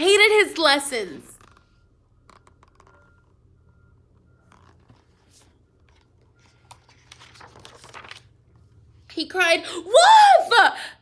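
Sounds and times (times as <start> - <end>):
low room hum: 0.0 - 11.0
paper rustling: 4.4 - 8.7.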